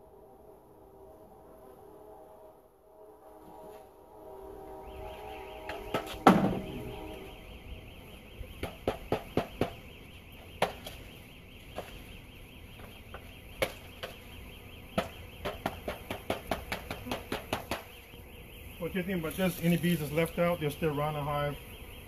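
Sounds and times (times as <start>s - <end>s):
wooden hive parts knocking: 5.7s - 6.7s, 8.5s - 9.8s, 10.6s - 11.1s, 12.8s - 14.4s, 15.0s - 18.0s.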